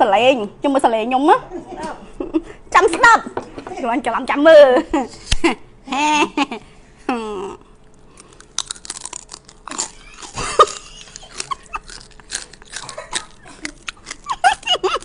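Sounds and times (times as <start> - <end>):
woman laughing: 4.7 - 7.6, 10.0 - 12.0, 12.8 - 15.0
crunchy food chewing: 7.8 - 15.0.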